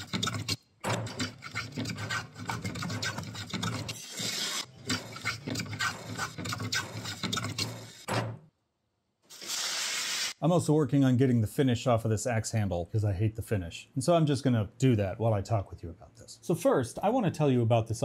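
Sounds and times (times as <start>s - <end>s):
plane and handsaw rasping wood: 0.0s - 8.0s.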